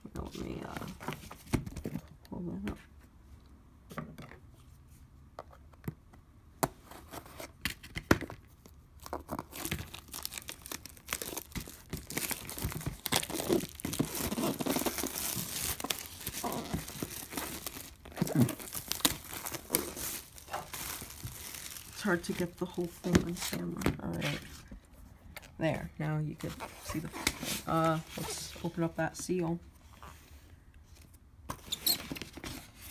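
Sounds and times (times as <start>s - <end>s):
plastic wrap crinkling and tearing: 9.0s - 24.4s.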